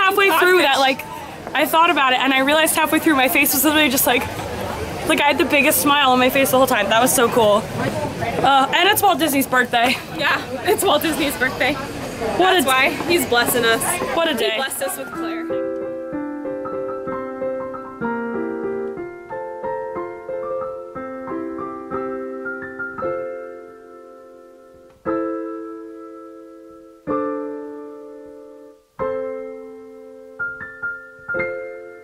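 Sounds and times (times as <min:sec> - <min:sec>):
solo piano music: 0:15.0 - 0:32.0.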